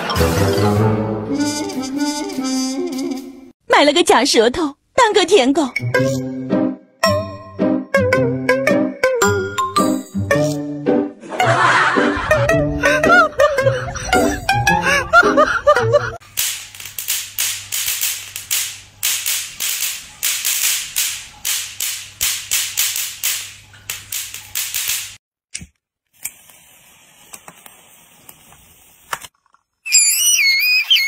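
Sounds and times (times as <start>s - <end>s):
electric swatter crackling snaps: 16.2s - 26.6s
faint hiss: 26.2s - 29.2s.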